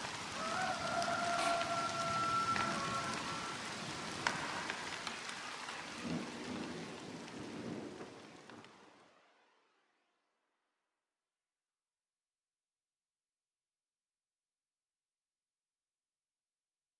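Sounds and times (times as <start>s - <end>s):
rain hissing: 0.0s - 9.4s.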